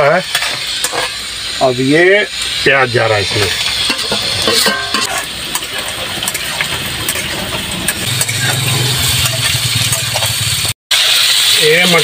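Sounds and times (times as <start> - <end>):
metal spatula scraping a pan: 0.0 - 1.6, 2.4 - 11.6
onions sizzling in hot oil: 0.0 - 12.0.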